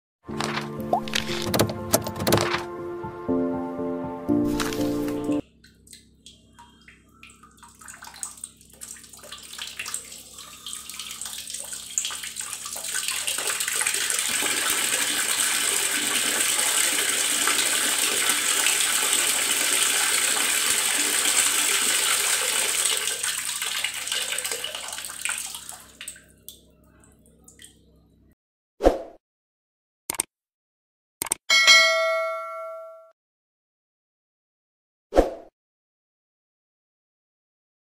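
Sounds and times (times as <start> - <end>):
tap handle clicks: 1.0 - 2.6
water rushing from tap: 7.7 - 26.3.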